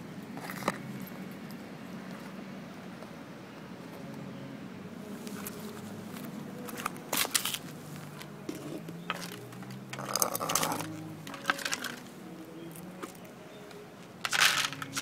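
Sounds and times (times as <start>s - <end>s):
packaging clicks: 9.1s - 12.1s, 13.0s - 15.0s
plastic crinkling: 9.1s - 12.1s, 14.3s - 15.0s.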